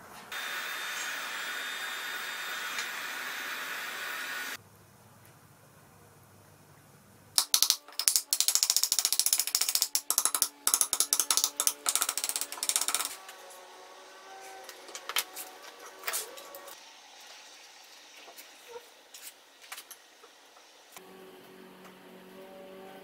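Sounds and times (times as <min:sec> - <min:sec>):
hammer tapping on metal punch: 0:07.4 - 0:13.1
scattered clicks: 0:07.4 - 0:13.2.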